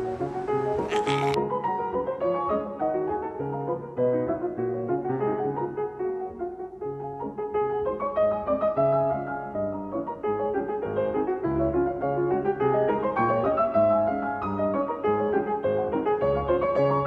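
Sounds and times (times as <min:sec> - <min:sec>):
piano music: 0:00.0 - 0:01.1.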